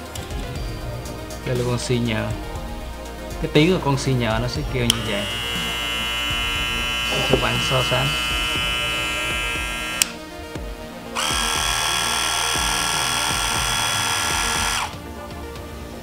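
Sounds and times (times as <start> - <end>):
hair clipper humming: 4.7 - 15.0
hair clipper high buzz: 4.8 - 15.0.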